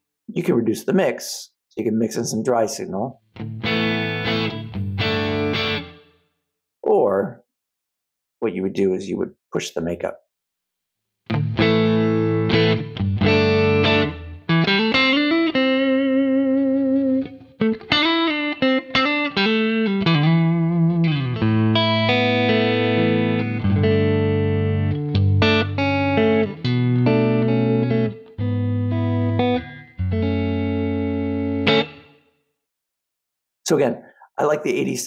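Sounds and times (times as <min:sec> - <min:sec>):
electric guitar playing: 0:03.4 - 0:06.1, 0:11.3 - 0:32.2.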